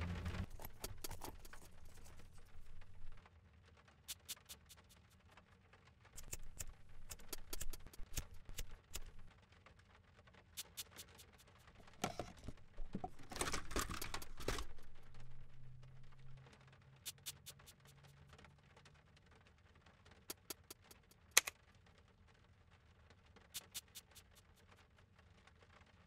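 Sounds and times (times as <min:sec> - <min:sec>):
car radio scraping and rattling: 0:00.0 - 0:03.2, 0:11.8 - 0:16.4.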